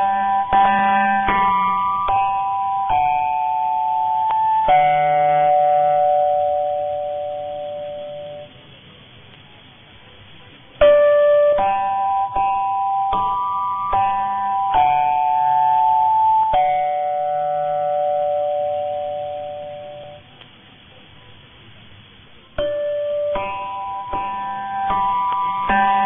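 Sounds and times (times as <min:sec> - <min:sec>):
faint radio background noise: 0:02.8 - 0:13.4, 0:17.2 - 0:26.0
plucked string music on radio: 0:22.5 - 0:26.0.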